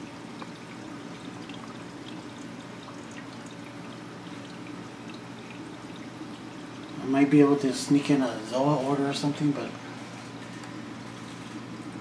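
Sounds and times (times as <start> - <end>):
water drips: 0.0 - 7.4
water trickling and splashing: 0.0 - 8.2, 11.0 - 12.0.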